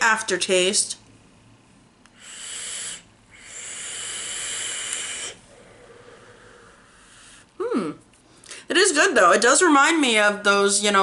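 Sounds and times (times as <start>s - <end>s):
breathy vaping hiss: 2.1s - 7.5s.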